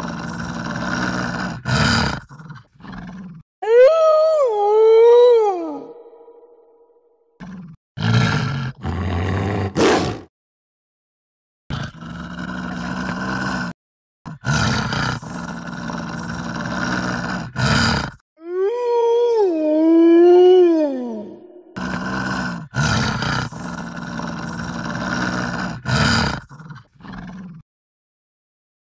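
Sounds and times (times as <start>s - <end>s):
wolf growling: 0.0s - 3.4s, 7.4s - 10.3s, 11.7s - 18.2s, 21.7s - 27.6s.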